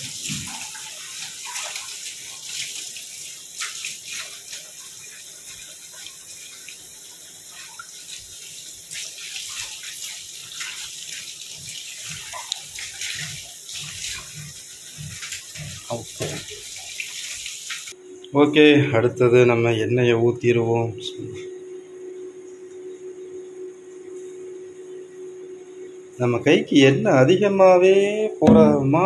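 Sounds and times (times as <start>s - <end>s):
tap water running and splashing: 0.0s - 18.0s.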